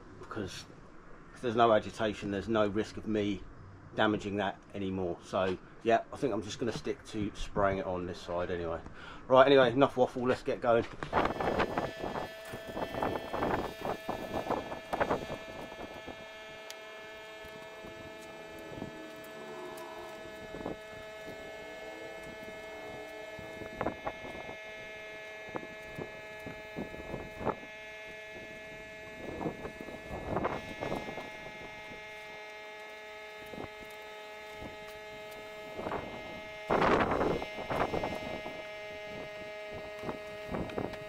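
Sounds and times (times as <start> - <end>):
pump humming: 11.1 - 41.0.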